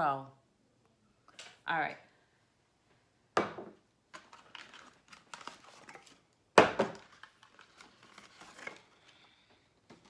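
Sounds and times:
hard object knocking on table: 3.4 - 3.8.

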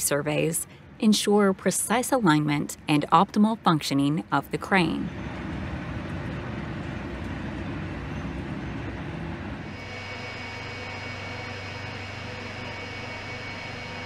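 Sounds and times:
machinery drone with rumble: 2.7 - 14.0
high whining tones: 5.1 - 14.0.

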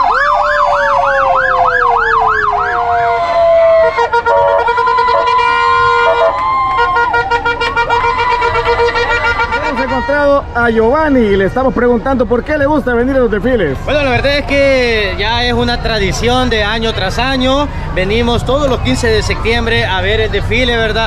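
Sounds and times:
electronic emergency sirens: 0.0 - 9.6.

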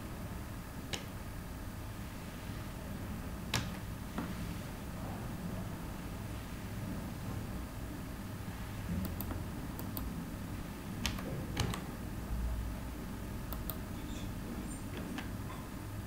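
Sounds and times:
steady low hum: 0.0 - 16.0
keyboard typing clicks: 9.0 - 10.1, 13.5 - 13.8.

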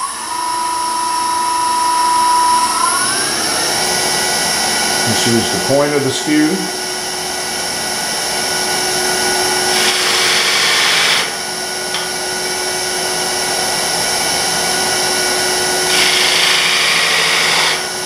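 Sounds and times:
wood lathe humming: 0.0 - 18.0
chisel hissing cut into wood: 9.7 - 11.4, 15.8 - 17.9.

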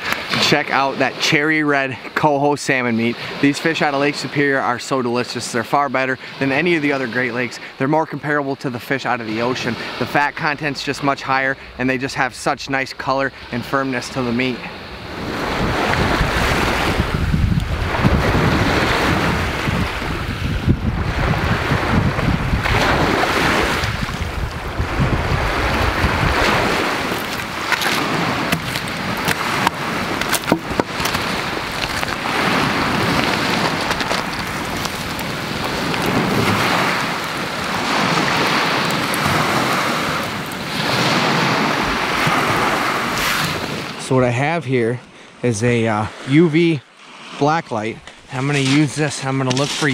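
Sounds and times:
waves washing onto stony beach: 0.0 - 44.0, 47.0 - 49.9
wind rumbling on microphone: 9.6 - 44.0
campfire crackling and popping: 25.4 - 40.8.

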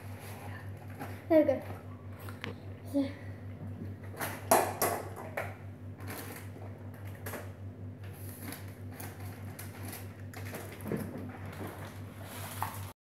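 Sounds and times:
steady low hum: 0.0 - 12.9
kitchen things knocking on counter: 4.4 - 5.5.

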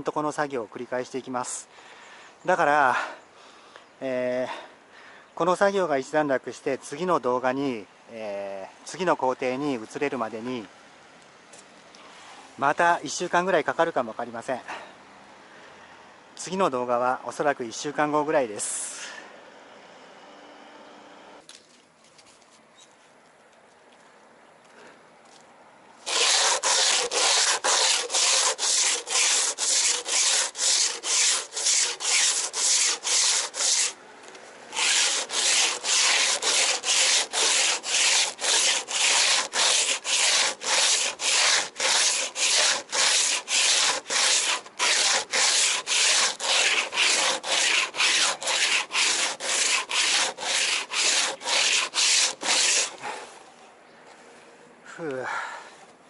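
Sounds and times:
sandpaper rubbing on hard epoxy: 26.0 - 34.0, 34.7 - 53.0.

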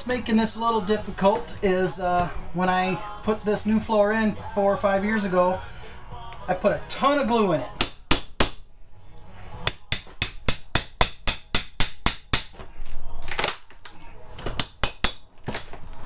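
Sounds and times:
hammer striking metal bar: 7.8 - 8.6, 9.6 - 12.6, 14.6 - 15.3.

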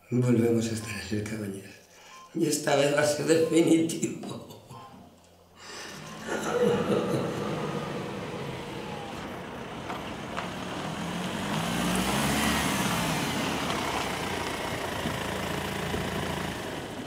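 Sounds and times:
car engine: 5.6 - 17.0
car tyres on road: 5.8 - 17.0.

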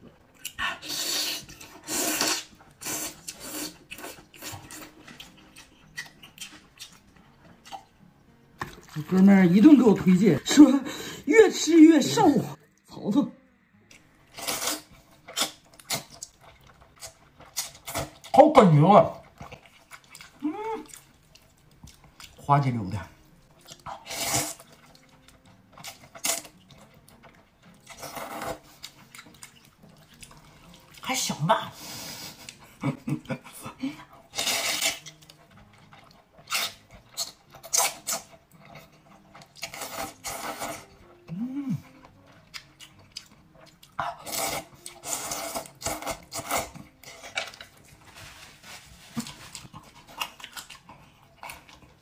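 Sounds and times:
wet chewing: 0.3 - 9.2, 13.8 - 31.1, 32.0 - 52.0
noodles slurped: 0.5 - 5.1, 34.2 - 35.4
person slurping noodles: 0.6 - 4.7, 14.3 - 16.1, 24.0 - 24.7, 34.3 - 35.0, 44.1 - 47.3.

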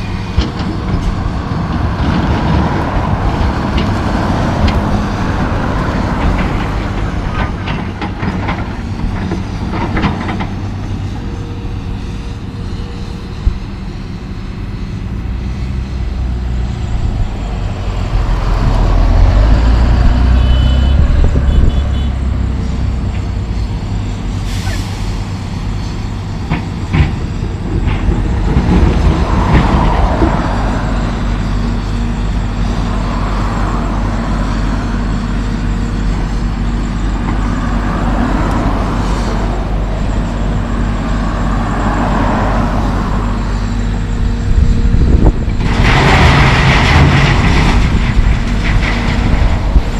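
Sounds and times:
dump truck diesel engine: 0.0 - 49.9
excavator engine working: 0.0 - 49.9
air brakes hissing: 24.4 - 25.3.

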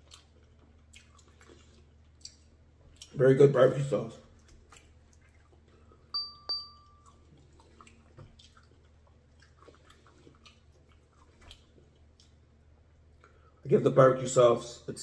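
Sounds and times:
faint chewing: 0.0 - 3.2, 4.2 - 6.1, 6.9 - 13.5
bright chime dings: 6.1 - 7.2.

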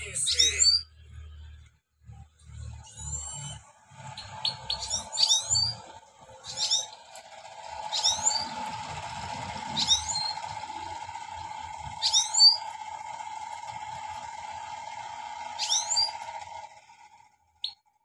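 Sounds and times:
goldfinch twittering song: 2.8 - 11.0, 11.8 - 13.0, 15.5 - 16.3, 17.6 - 17.9
steady hum: 5.0 - 17.5.

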